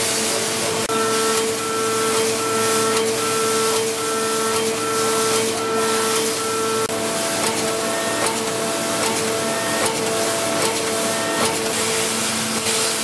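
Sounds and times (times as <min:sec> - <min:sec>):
pump hissing and humming: 0:00.0 - 0:13.0.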